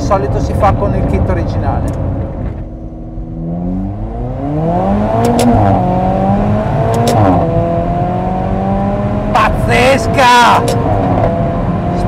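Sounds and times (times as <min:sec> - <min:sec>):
exhaust crack at upshift: 0:01.0 - 0:08.5
car engine accelerating hard: 0:03.0 - 0:12.0.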